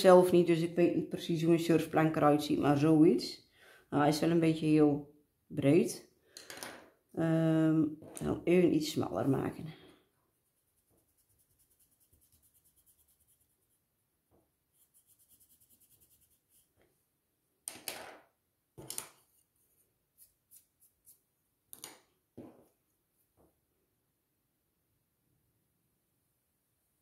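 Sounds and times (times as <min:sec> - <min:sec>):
pencils clicking on wooden table: 0:06.3 - 0:06.9, 0:17.6 - 0:18.2, 0:18.8 - 0:19.4, 0:21.7 - 0:22.1
eraser rubbing on paper: 0:10.4 - 0:13.9, 0:14.7 - 0:16.8, 0:19.4 - 0:21.3.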